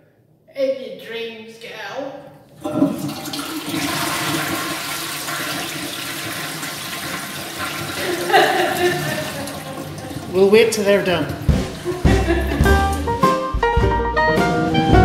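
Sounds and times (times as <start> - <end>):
toilet flushing: 2.6 - 12.9.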